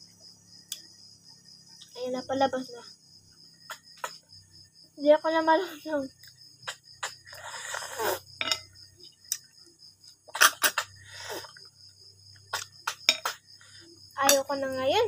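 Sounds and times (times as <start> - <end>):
crickets chirring: 0.0 - 15.0
slurping snail meat: 7.0 - 8.3.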